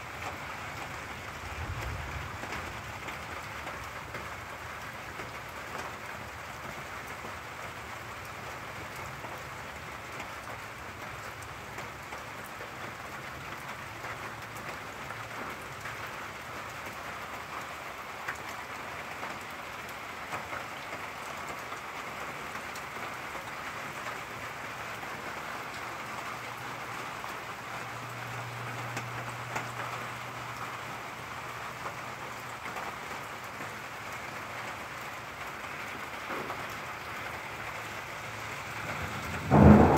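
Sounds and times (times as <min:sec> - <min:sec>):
steady rain: 0:00.0 - 0:39.9
low thunder rumble: 0:38.5 - 0:39.9.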